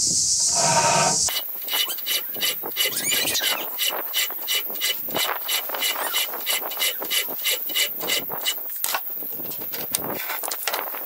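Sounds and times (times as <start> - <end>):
round file scraping steel: 0.4 - 8.6.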